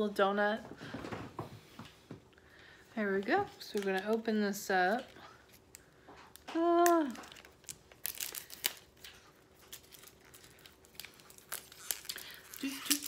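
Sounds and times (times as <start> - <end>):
crinkly packaging crackling and tearing: 3.2 - 13.0.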